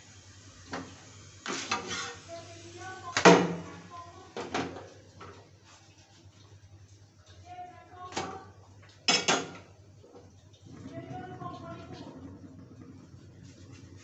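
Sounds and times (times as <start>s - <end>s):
faint voices: 10.6s - 13.9s.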